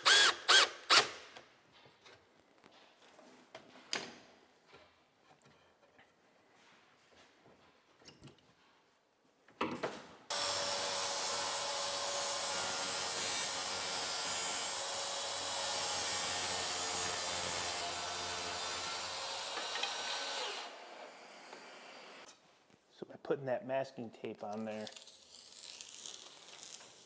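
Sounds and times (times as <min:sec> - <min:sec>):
circular saw cutting panel: 0:10.3 - 0:22.3.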